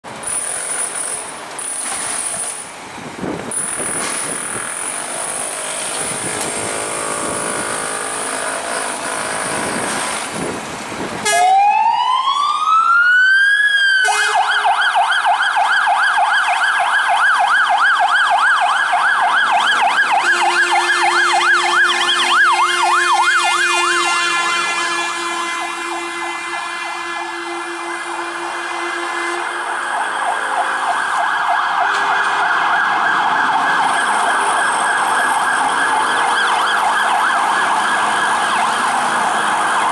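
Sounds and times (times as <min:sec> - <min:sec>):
city traffic noise: 0:00.0 - 0:39.9
fire engine siren wailing: 0:03.2 - 0:39.9
fire engine horns: 0:05.0 - 0:10.5, 0:11.2 - 0:12.3, 0:13.8 - 0:15.4, 0:18.3 - 0:39.9.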